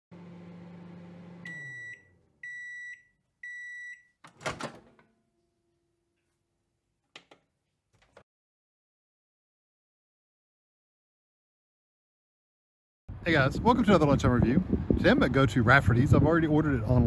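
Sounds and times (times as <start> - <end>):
microwave oven humming: 0.1 - 5.9
high microwave beeps: 1.4 - 4.2.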